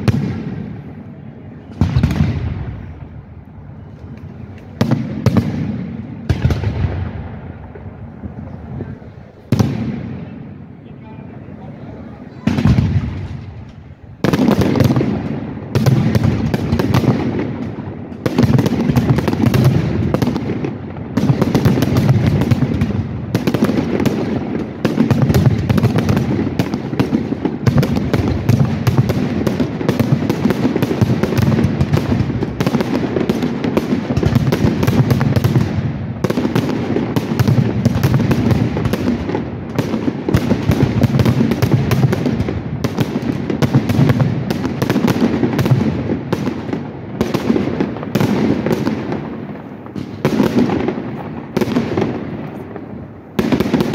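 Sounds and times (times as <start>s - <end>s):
fireworks bangs and crackling: 0.0s - 53.9s.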